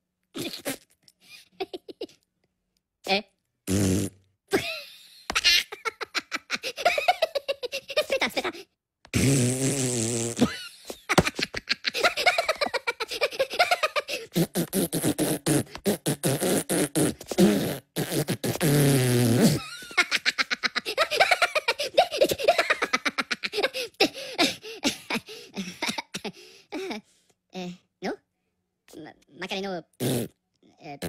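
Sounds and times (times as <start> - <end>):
person making raspberry noises: 0.3 - 1.2, 3.7 - 4.3, 9.1 - 19.9, 30.0 - 31.0.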